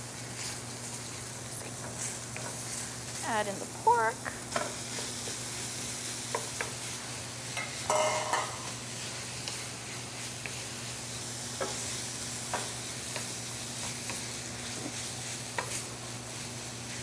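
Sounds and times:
meat sizzling in hot oil: 0:00.0 - 0:17.0
wooden spoon scraping a pan: 0:00.2 - 0:03.8, 0:04.5 - 0:17.0.

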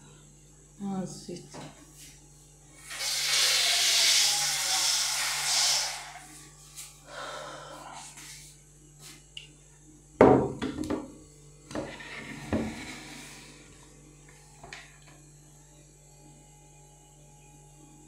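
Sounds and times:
faint steady hum: 0:00.0 - 0:18.0
kitchen things knocking and clattering: 0:10.2 - 0:11.1.

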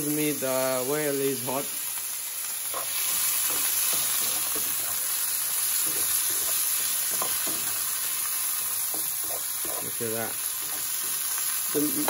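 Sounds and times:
vegetables sizzling in oil: 0:00.0 - 0:12.0
spatula scraping a pan: 0:02.7 - 0:08.0, 0:08.6 - 0:11.4.

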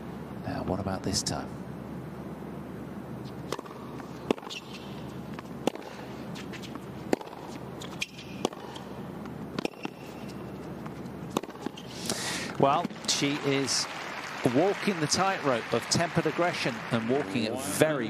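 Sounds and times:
tennis ball bouncing: 0:03.2 - 0:11.9, 0:12.7 - 0:13.1
tennis racket hitting ball: 0:03.4 - 0:11.9.

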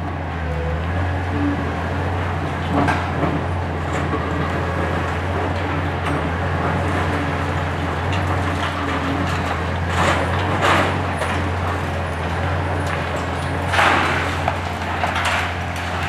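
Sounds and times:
excavator diesel engine running: 0:00.0 - 0:16.0
concrete rubble crashing down: 0:07.9 - 0:16.0.

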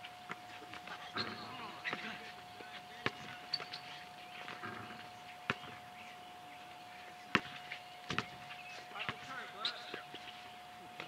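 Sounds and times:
faint steady hum: 0:00.0 - 0:11.0
basketball bouncing: 0:03.0 - 0:03.8, 0:04.4 - 0:05.9, 0:07.3 - 0:10.0.

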